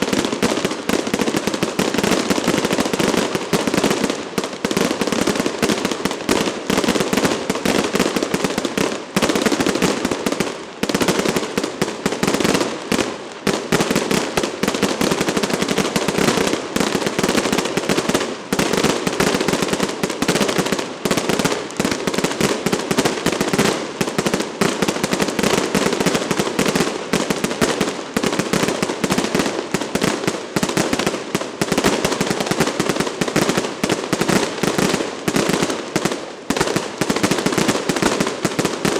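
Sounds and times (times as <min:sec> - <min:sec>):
firecrackers crackling: 0:00.0 - 0:38.9.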